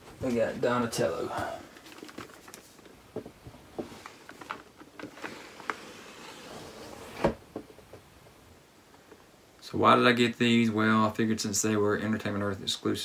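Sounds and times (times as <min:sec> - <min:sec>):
cardboard packaging handled: 0:01.4 - 0:02.9.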